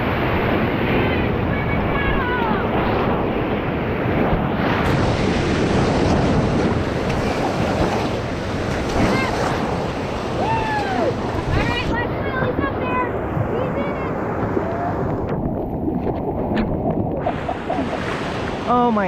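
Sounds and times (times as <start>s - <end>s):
wind buffeting microphone: 0.0s - 19.0s
whitewater rapids rushing: 4.8s - 19.0s.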